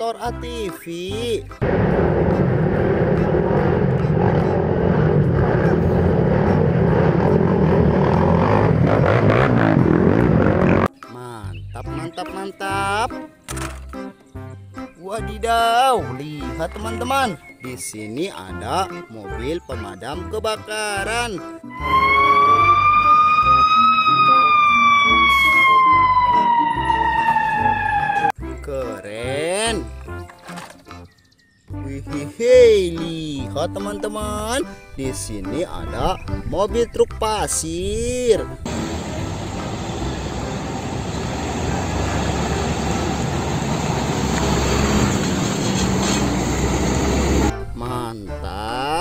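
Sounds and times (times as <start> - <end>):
truck driving past: 1.6 - 10.9, 38.7 - 47.6
fire engine siren wailing: 21.7 - 28.4.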